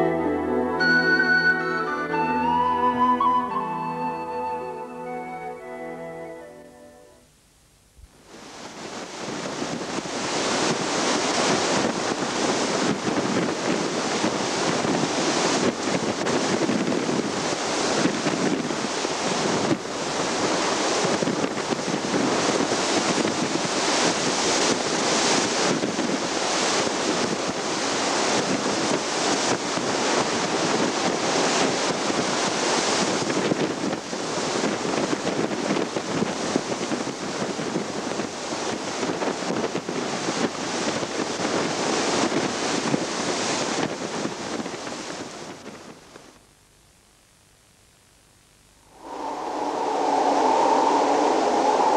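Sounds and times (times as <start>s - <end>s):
wind on microphone: 8.0s - 46.3s, 48.9s - 51.9s
water rushing across deck: 8.2s - 45.9s.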